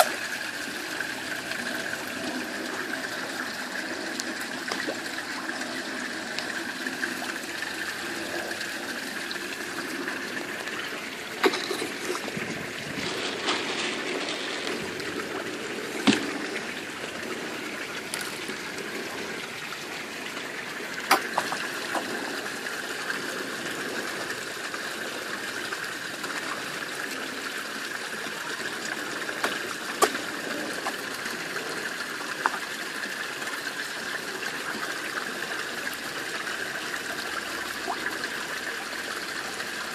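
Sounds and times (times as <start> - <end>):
water trickling into pond: 0.0 - 39.9
fish slurping at surface: 6.9 - 19.2.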